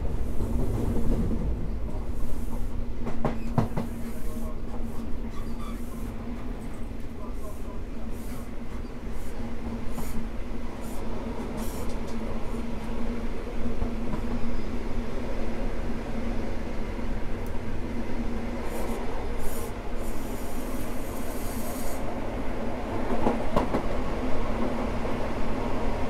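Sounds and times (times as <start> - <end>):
train rumbling and humming: 0.0 - 26.0
brief high hiss: 11.6 - 12.0.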